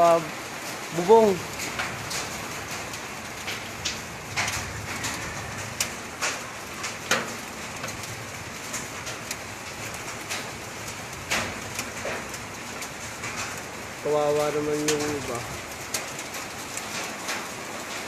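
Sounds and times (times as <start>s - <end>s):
sandy rain pattering on roof: 0.0s - 18.0s.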